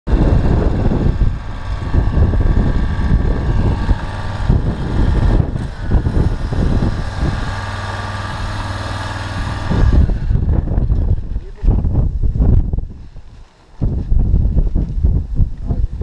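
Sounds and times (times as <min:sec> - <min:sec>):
motorcycle engine running unevenly: 0:00.1 - 0:11.7.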